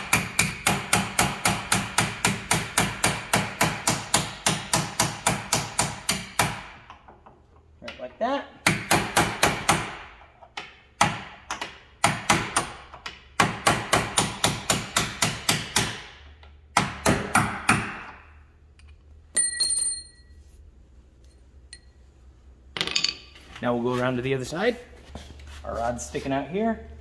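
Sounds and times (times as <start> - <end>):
steel ringing on concrete floor: 19.4 - 20.3.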